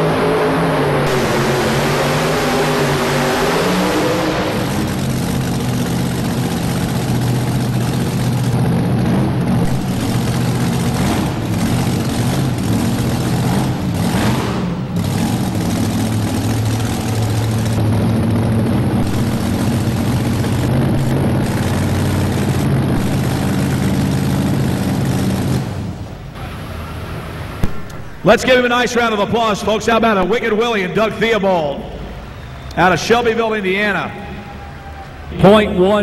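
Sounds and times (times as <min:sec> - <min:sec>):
truck engine idling loudly: 0:00.0 - 0:36.0.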